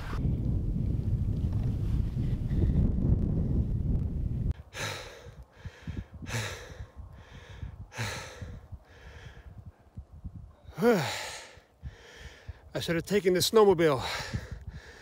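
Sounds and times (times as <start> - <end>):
wind rumbling on microphone: 0.0 - 15.0
man breathing hard: 4.6 - 9.8, 10.6 - 12.7, 14.0 - 15.0
man sighing: 10.7 - 11.7.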